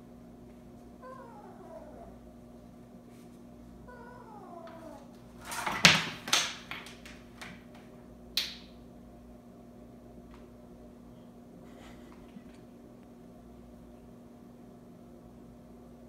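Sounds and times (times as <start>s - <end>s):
kitten meowing: 1.0s - 2.1s, 3.9s - 5.1s
window blinds rattling: 5.4s - 7.6s.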